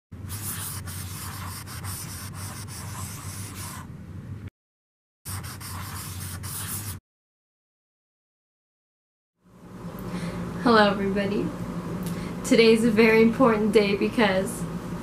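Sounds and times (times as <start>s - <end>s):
marker scratching on paper: 0.3s - 3.9s, 5.3s - 7.0s.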